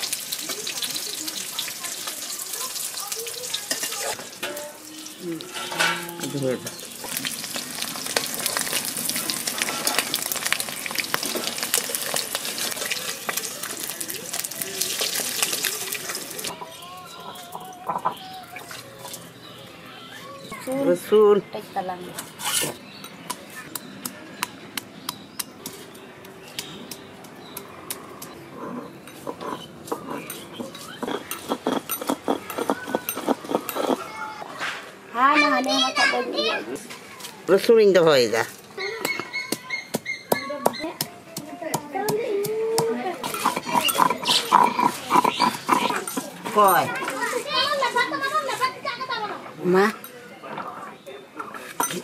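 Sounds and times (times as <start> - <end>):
eggs sizzling in hot oil: 0.0 - 16.5
stone roller grinding garlic: 27.4 - 34.3, 42.4 - 47.1
metal spatula clicking and scraping: 27.9 - 34.1, 43.2 - 46.8.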